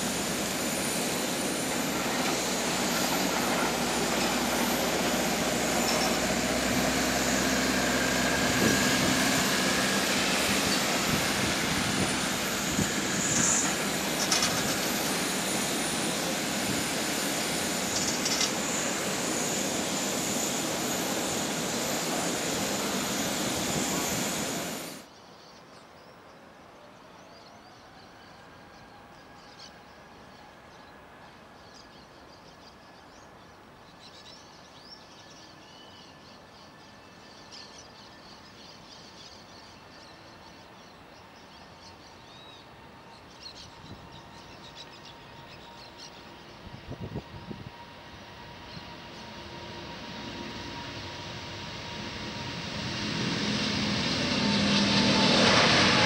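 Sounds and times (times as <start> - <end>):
distant jet engine hum: 0.0 - 25.1, 36.2 - 56.0
loud jet engines: 0.0 - 25.1, 34.0 - 56.0.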